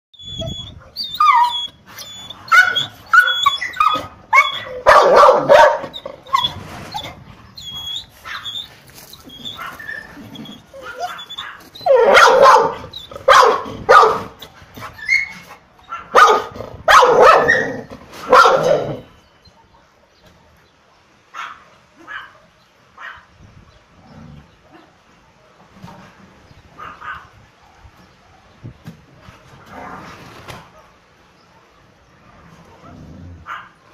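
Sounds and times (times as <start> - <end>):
dog whining: 0.2 - 13.4, 14.4 - 16.0, 17.2 - 19.2
dog barking: 4.4 - 5.9, 10.9 - 14.4, 15.9 - 19.0, 21.3 - 23.2, 26.8 - 28.6, 32.8 - 33.8.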